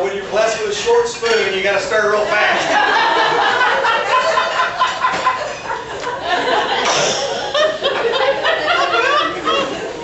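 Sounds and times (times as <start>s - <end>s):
people talking: 0.0s - 2.9s
audience laughing: 2.3s - 10.0s.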